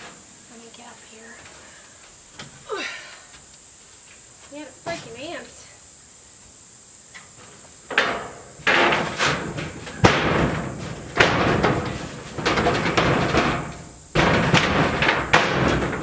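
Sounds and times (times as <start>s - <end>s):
metal panel rattling: 7.9s - 16.0s.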